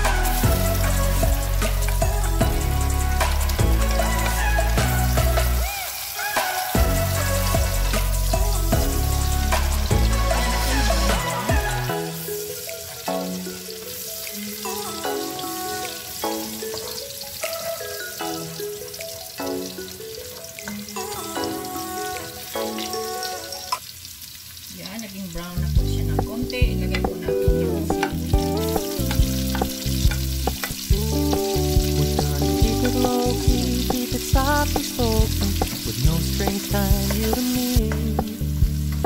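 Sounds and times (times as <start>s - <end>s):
drum and bass beat: 0.0s - 12.0s, 25.8s - 39.0s
background music: 0.0s - 23.8s, 25.5s - 39.0s
garlic sizzling in hot oil: 0.0s - 39.0s.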